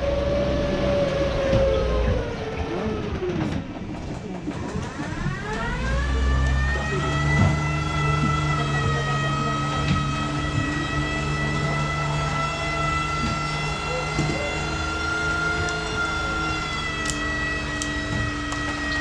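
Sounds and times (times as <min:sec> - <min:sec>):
boat motor whining: 0:00.0 - 0:03.8, 0:04.6 - 0:19.0
low hum: 0:04.7 - 0:19.0.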